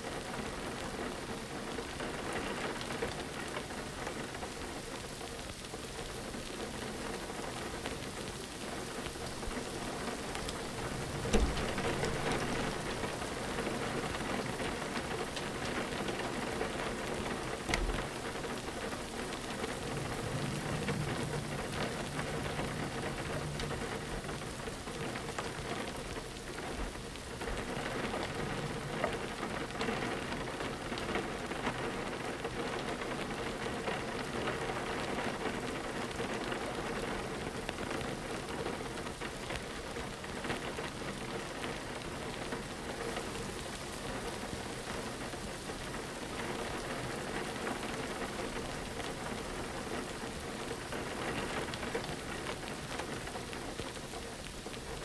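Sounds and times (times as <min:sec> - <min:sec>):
rain pattering on a window: 0:00.0 - 0:55.0
low thumps: 0:10.8 - 0:12.8.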